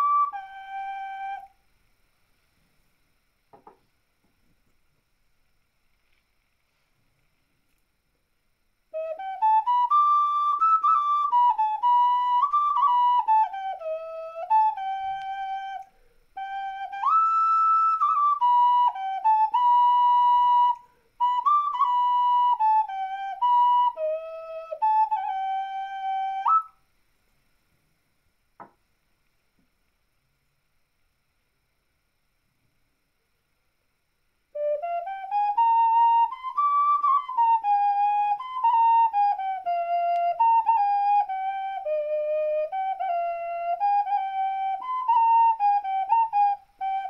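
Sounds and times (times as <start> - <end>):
ocarina slow melody: 0.0 - 1.7, 8.9 - 26.8, 34.5 - 47.0
ocarina knocking on wooden table: 3.5 - 3.8, 28.6 - 28.8.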